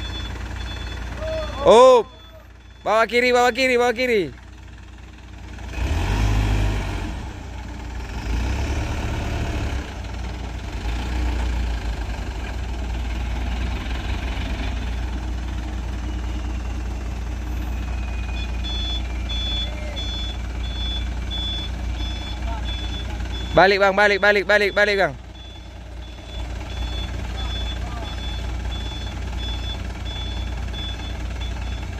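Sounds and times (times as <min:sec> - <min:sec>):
reversing beeps: 0:00.0 - 0:03.6, 0:16.0 - 0:31.9
diesel truck engine revving: 0:00.0 - 0:31.9.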